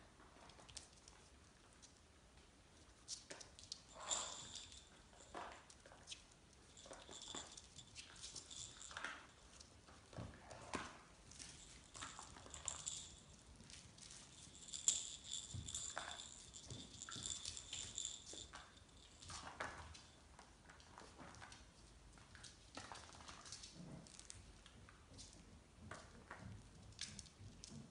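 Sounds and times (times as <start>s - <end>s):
small paws pattering: 0.2s - 27.9s
toys and bedding rustling: 6.6s - 20.2s.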